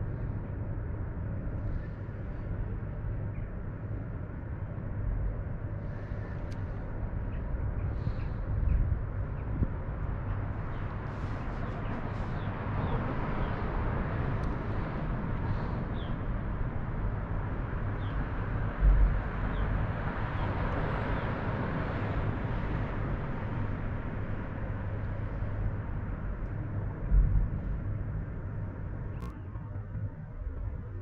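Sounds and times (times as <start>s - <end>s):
low rumble: 24.3s - 31.0s.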